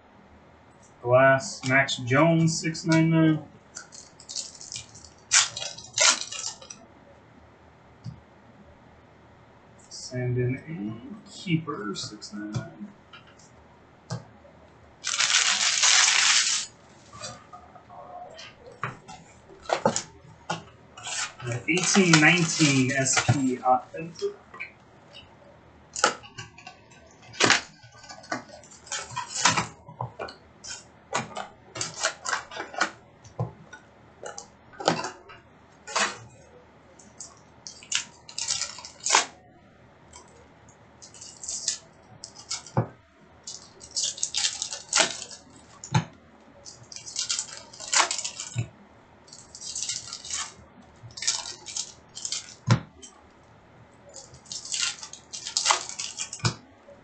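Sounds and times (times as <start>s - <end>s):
foil wrappers and cards crinkling: 3.7s - 6.8s, 15.0s - 17.4s, 21.0s - 24.3s, 37.0s - 39.4s, 41.0s - 42.8s, 43.4s - 45.9s, 46.7s - 48.7s, 49.3s - 53.1s, 54.1s - 56.6s.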